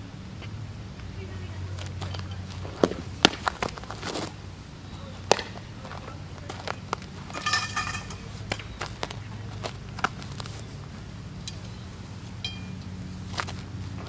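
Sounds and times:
steady low hum: 0.0 - 14.0
softball clicks and knocks: 1.7 - 4.4, 5.1 - 10.6.

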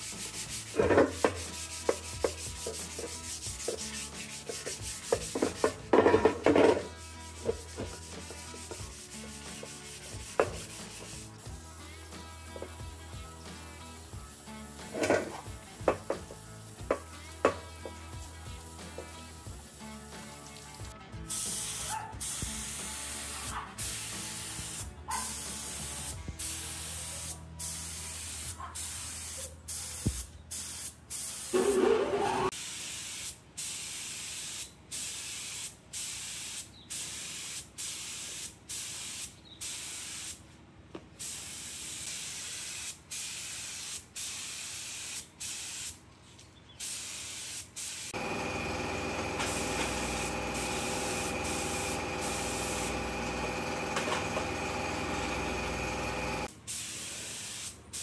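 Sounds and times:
air spray gun hissing: 0.0 - 5.8, 6.7 - 11.6, 21.3 - 40.4, 41.2 - 46.0, 46.8 - 58.0
steady machine hum: 48.2 - 56.5.

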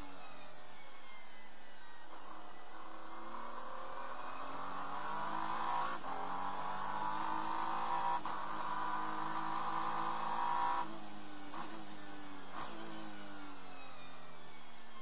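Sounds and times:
gear upshifts: 2.1 - 15.0
race car engine accelerating: 2.1 - 15.0.

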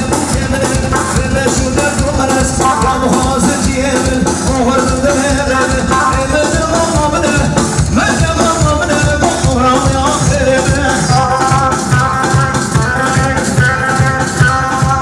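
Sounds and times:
live band dance music: 0.0 - 15.0.

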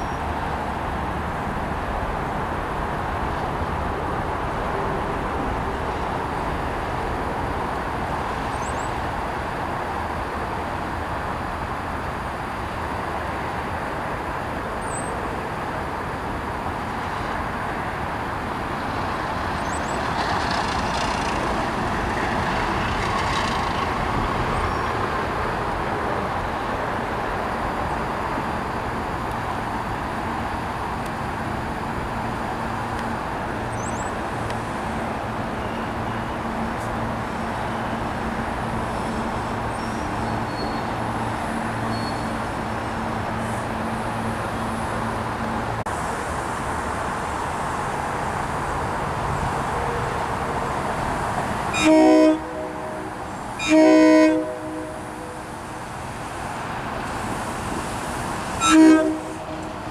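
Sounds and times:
passing vehicles rumble: 0.0 - 59.9
faint bird chirps: 41.9 - 42.4.

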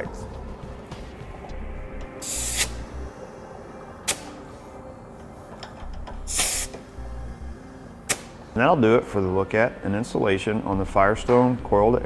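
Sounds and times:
compressed air hissing: 2.1 - 3.1, 4.0 - 4.8, 6.2 - 7.0.

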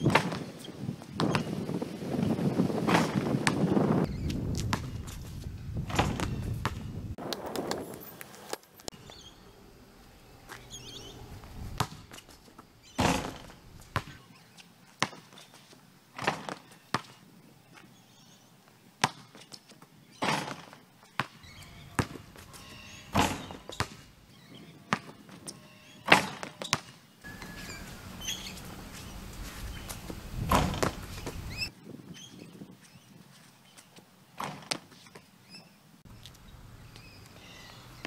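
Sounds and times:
ball hitting rim and backboard: 0.0 - 0.5, 1.2 - 1.6, 2.8 - 5.2, 5.8 - 7.0, 11.7 - 14.2, 16.2 - 17.2, 20.2 - 24.1, 26.1 - 26.9, 30.4 - 31.4
basketball bouncing on concrete: 0.0 - 0.5, 1.2 - 1.6, 2.8 - 7.0, 11.8 - 14.2, 16.2 - 17.2, 19.0 - 19.4, 20.3 - 22.6, 23.2 - 24.0, 24.9 - 25.1, 30.4 - 31.4.

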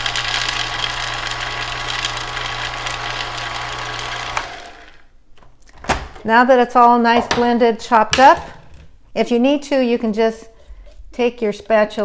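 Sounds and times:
food processor motor running: 0.0 - 5.1.

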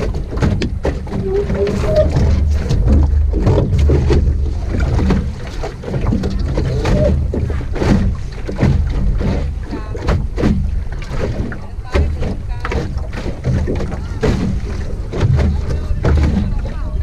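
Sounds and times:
knocks from boat: 0.0 - 17.0
water slapping against hull: 0.0 - 17.0
wind rumbling on microphone: 0.0 - 17.0.

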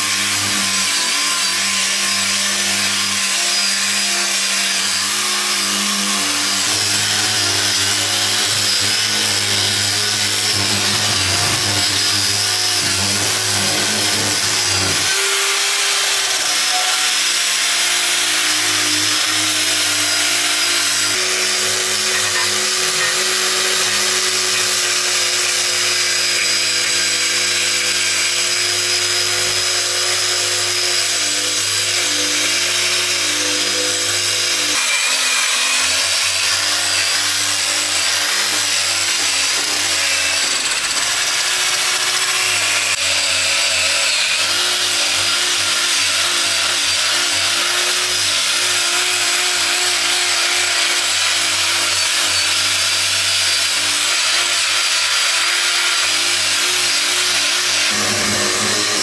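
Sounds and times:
angle grinder motor whine: 0.0 - 43.3, 55.9 - 59.0
sanding disc rubbing on wood: 2.9 - 17.6, 56.8 - 59.0.

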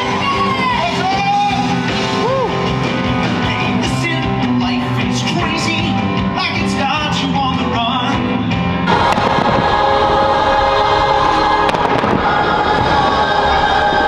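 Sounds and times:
singer with live band: 0.0 - 9.8.

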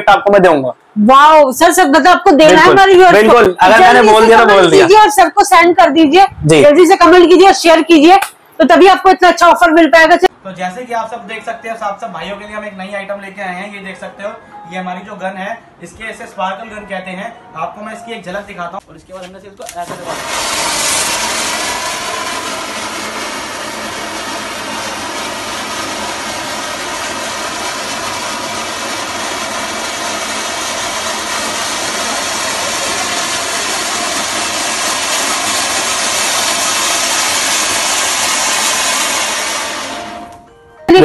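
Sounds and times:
sparkler gun hissing: 19.9 - 40.3.

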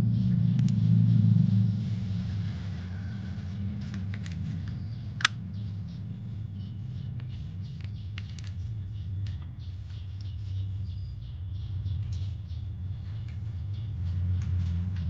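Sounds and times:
steady low rumble: 0.0 - 15.0
plastic toy parts clicking: 7.2 - 8.6.

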